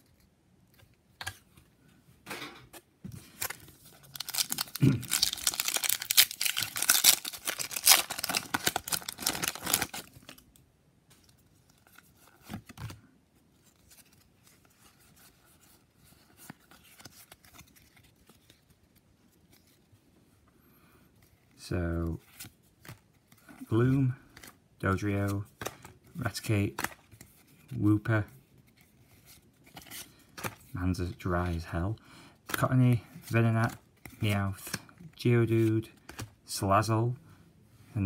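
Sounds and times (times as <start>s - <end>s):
cards rustling: 2.7s - 10.5s, 11.1s - 13.0s, 13.6s - 19.9s, 21.2s - 31.6s, 32.4s - 36.4s
foil wrapper crinkling and tearing: 3.4s - 10.4s.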